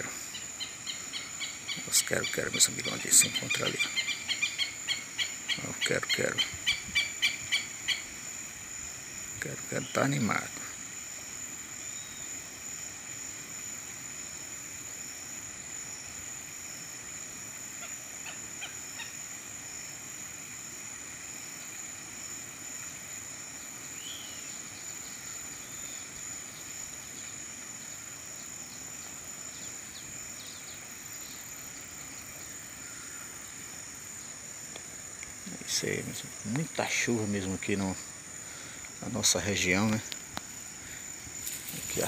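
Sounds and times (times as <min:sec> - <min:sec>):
insects droning: 0:00.0 - 0:42.0
lapwings harsh calls: 0:17.8 - 0:19.2.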